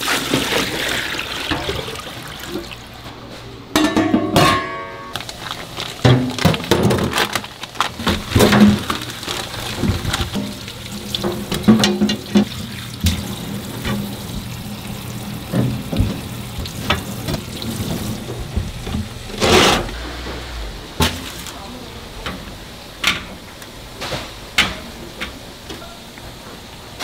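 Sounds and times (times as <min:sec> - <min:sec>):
steady hiss: 0:16.3 - 0:27.0
loud burst of hiss: 0:19.5 - 0:22.1.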